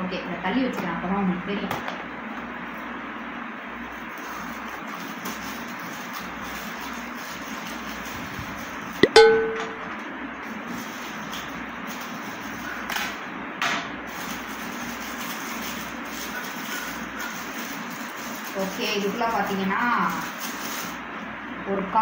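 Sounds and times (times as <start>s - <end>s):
foil wrap crinkly tearing: 3.9s - 8.9s, 14.1s - 21.0s
box cutter cutting foil wrap: 4.2s - 8.1s
sharp metallic ding: 9.0s - 9.9s.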